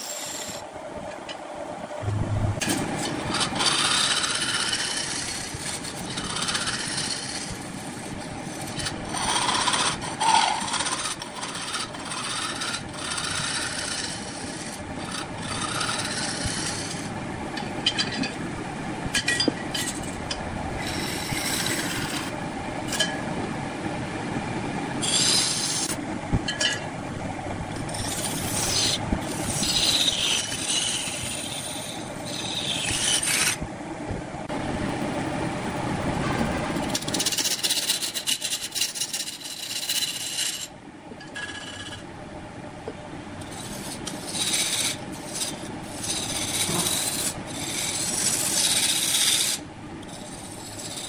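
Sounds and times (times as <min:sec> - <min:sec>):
lathe running: 0:02.0 - 0:18.2, 0:19.8 - 0:23.1, 0:25.0 - 0:26.0, 0:27.8 - 0:33.6, 0:36.5 - 0:40.7, 0:41.3 - 0:42.0, 0:43.4 - 0:51.0
lathe tool cutting wood: 0:03.0 - 0:08.0, 0:08.6 - 0:17.1, 0:28.0 - 0:33.6, 0:43.6 - 0:51.0.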